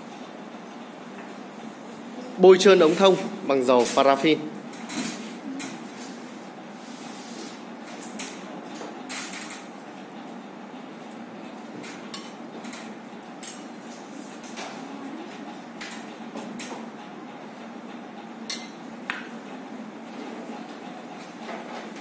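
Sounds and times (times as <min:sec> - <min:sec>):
room hum: 0:00.0 - 0:22.0.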